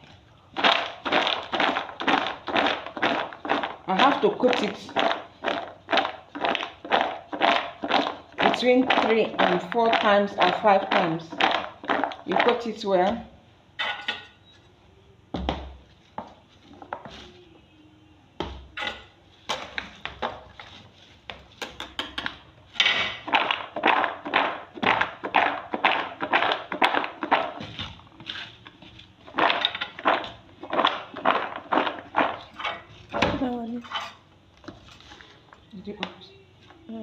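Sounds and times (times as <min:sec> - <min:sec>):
peanuts rattling in a bowl: 0:00.6 - 0:12.9, 0:23.2 - 0:27.6, 0:29.3 - 0:32.7.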